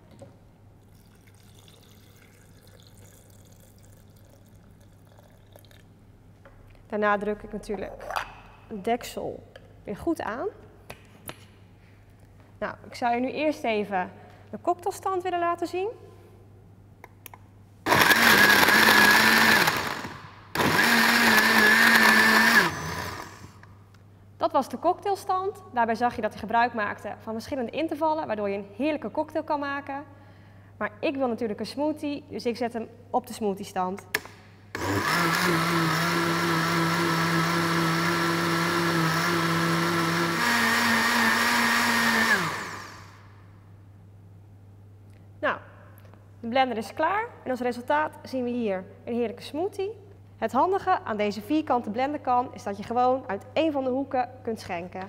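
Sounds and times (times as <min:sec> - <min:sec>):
blender motor running: 0:17.9 - 0:23.7, 0:34.8 - 0:43.2.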